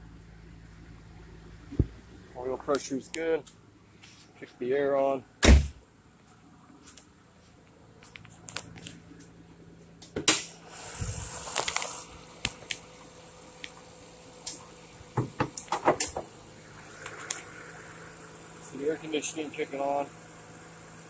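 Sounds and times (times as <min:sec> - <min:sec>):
car engine idling: 0:00.0 - 0:04.5, 0:05.2 - 0:21.0
hiss: 0:10.6 - 0:12.1.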